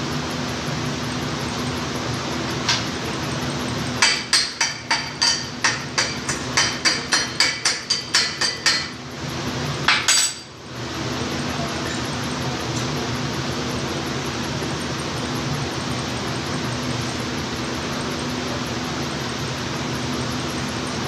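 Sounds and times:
hammer striking steel tube: 4.0s - 9.0s.

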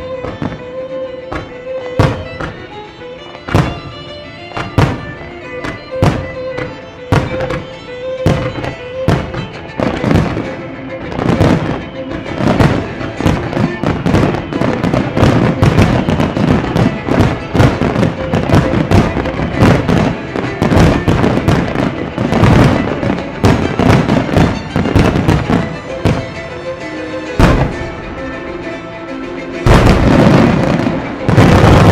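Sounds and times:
background music: 0.0s - 31.9s.

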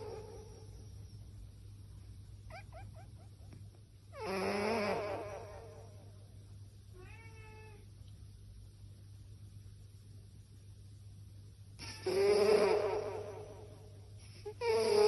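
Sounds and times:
cat chirping in sleep: 0.0s - 1.3s, 2.5s - 3.5s, 4.1s - 6.0s, 11.8s - 13.7s, 14.4s - 15.0s
steady low hum: 0.0s - 15.0s
cat meowing: 7.0s - 7.8s.

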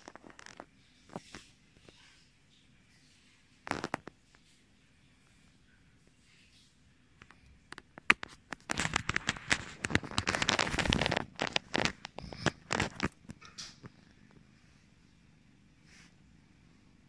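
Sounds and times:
cat fur rubbing on microphone: 8.0s - 13.3s, 15.8s - 16.2s.

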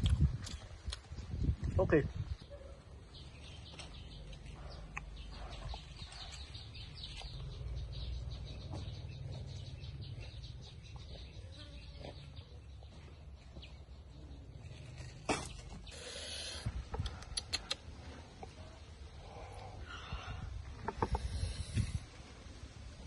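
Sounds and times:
bird calls and chirps: 2.2s - 22.0s
clucking: 20.7s - 21.4s.

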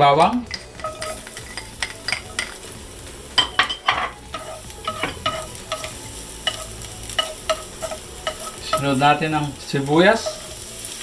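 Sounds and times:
garlic sizzling in oil: 0.6s - 11.0s
spatula scraping and knocking pan: 3.3s - 10.6s.

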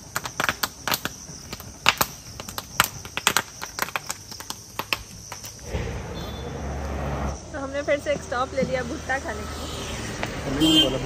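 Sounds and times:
wood fire crackling and popping: 0.0s - 6.2s.

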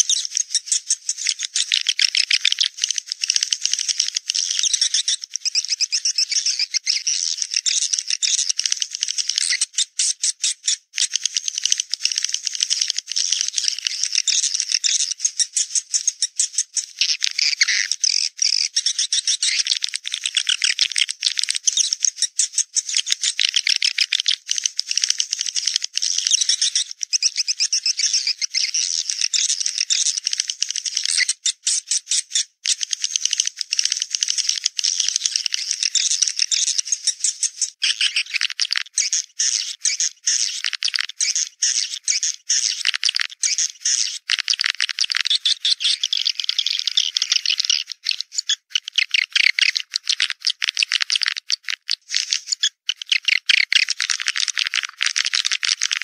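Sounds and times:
swiftlet chittering calls: 34.4s - 53.9s.

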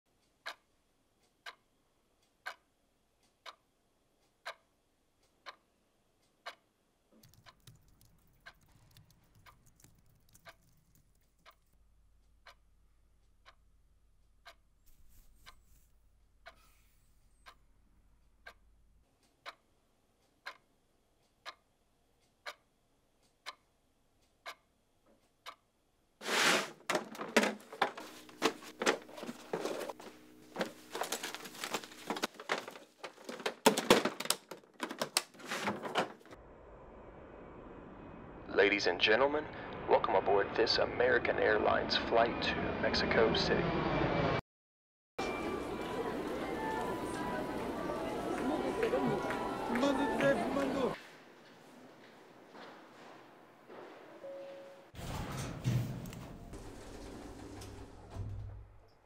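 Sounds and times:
clock ticking: 0.2s - 14.8s, 17.4s - 25.7s.

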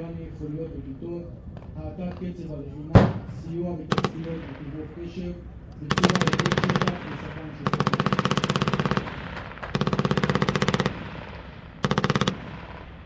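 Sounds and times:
automatic gunfire bursts: 3.9s - 4.5s, 5.8s - 12.9s.

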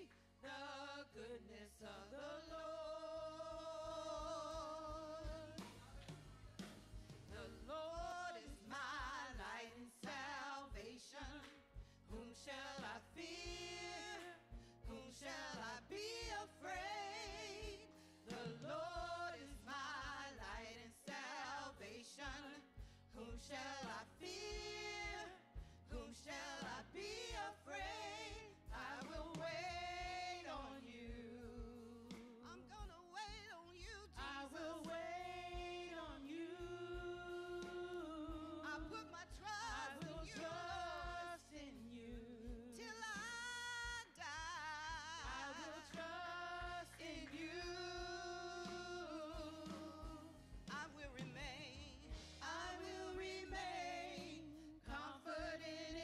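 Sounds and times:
keyboard and band: 0.0s - 56.0s
women singing gospel: 0.0s - 56.0s.

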